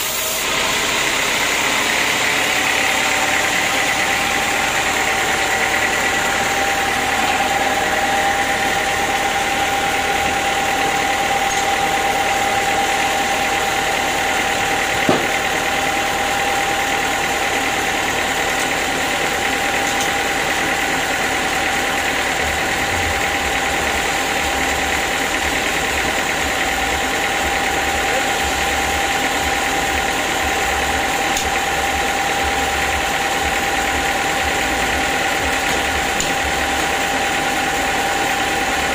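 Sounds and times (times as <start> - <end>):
sawmill machinery running: 0.0 - 38.9
sharp knock: 15.0 - 15.4.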